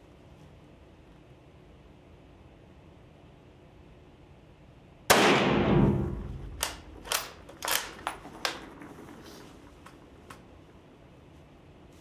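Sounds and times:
rifle shot ringing: 5.1s - 7.2s
rifle bolt clicks: 6.5s - 8.0s.

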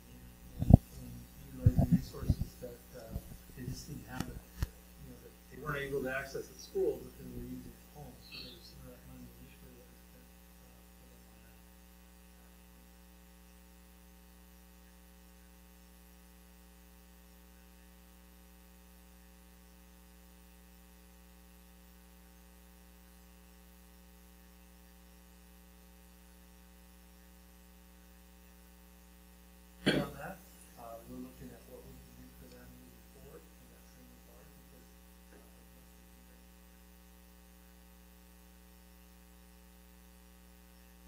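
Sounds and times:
electrical mains hum: 0.0s - 41.0s
faint hiss: 0.0s - 41.0s.

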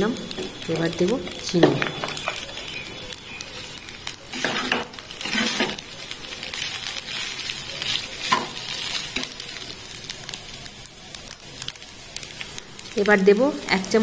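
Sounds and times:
rice sizzling: 0.0s - 14.0s
metal spatula scraping frying pan: 4.3s - 5.8s.

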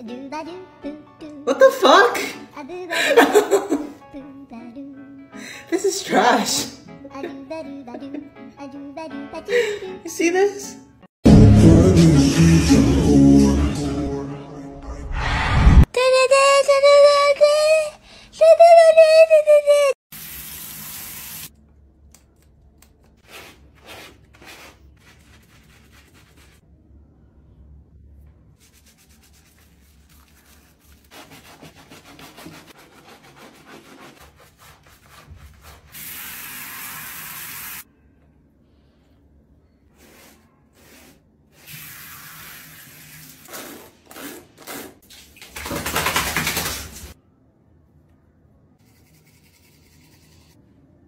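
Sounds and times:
shower spray: 20.1s - 21.5s, 35.8s - 37.8s, 40.8s - 47.2s
brush scrubbing wet fur: 28.6s - 36.1s.

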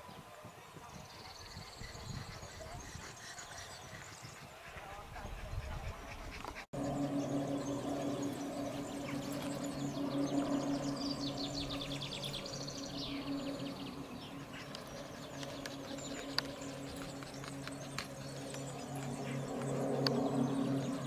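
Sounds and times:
low hum with pulsing beat: 6.8s - 21.0s
songbird trilling: 6.8s - 21.0s.

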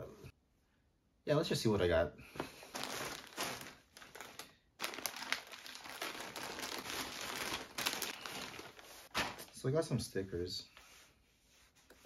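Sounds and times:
plastic packaging crinkling: 2.6s - 9.6s.

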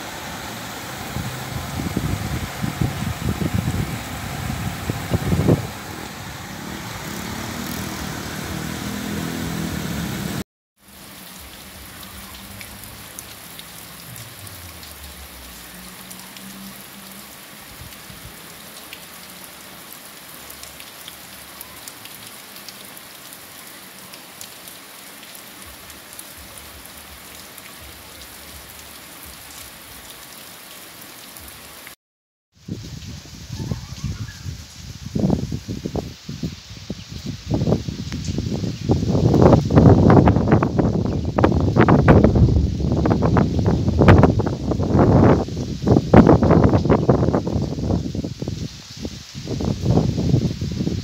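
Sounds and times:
vehicle engine hum passing: 0.0s - 10.4s, 12.2s - 17.6s
flowing runoff: 0.0s - 32.0s, 32.6s - 51.0s
rain falling on a street: 0.0s - 32.0s, 32.6s - 51.0s.

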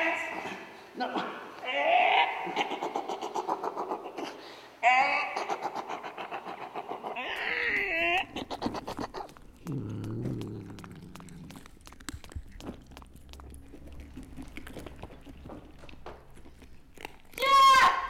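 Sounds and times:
low growl: 9.4s - 16.7s.

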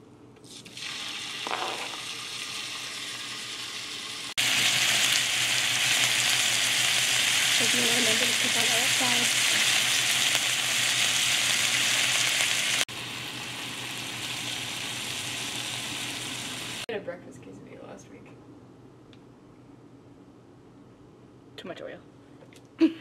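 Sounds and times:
chicken sizzling in hot oil: 0.5s - 16.9s.

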